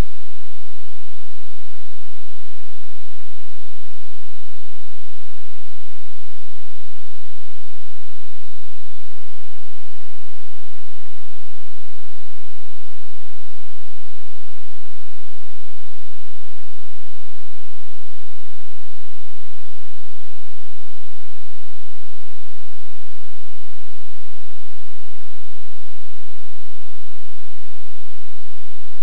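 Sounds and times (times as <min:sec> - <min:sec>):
electrical hum with hiss: 0:00.0 - 0:29.0.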